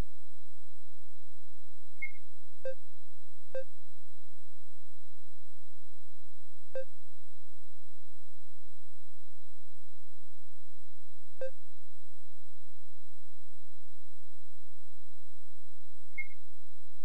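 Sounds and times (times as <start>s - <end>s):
faint electronic whine and hum: 0.0s - 17.0s
electronic beeps: 16.2s - 16.4s.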